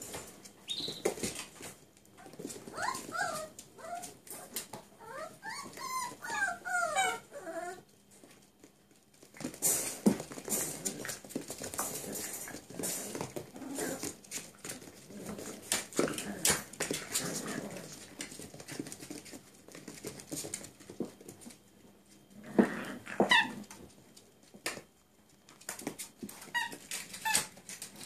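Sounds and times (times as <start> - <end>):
puppies whining and yipping: 2.2 - 7.9, 23.2 - 23.7, 26.4 - 27.5
claws scrabbling on tiled floor: 8.2 - 28.0.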